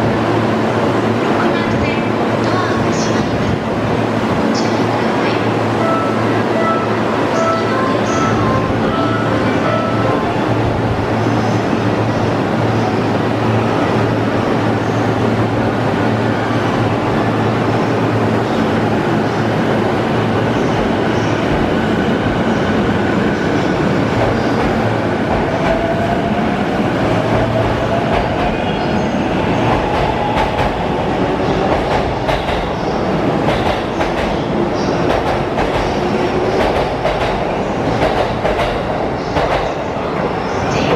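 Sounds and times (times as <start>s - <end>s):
train wheels clacking over rail joints: 31.7s - 32.7s.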